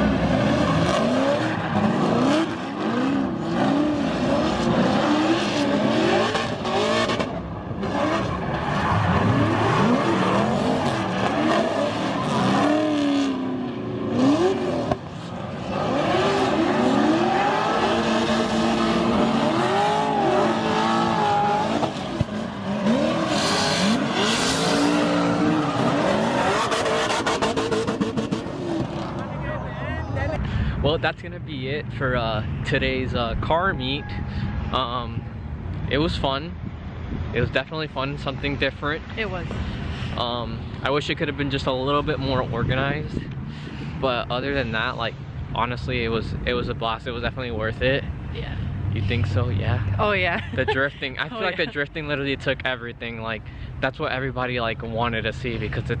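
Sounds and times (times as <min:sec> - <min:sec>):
car engines revving hard: 0:00.0 - 0:31.2, 0:47.6 - 0:56.0.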